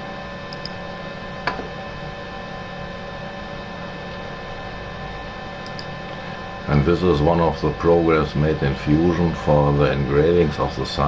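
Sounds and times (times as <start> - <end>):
steady electrical hum: 0.0 - 11.0
sharp click: 0.5 - 0.8, 5.6 - 5.9.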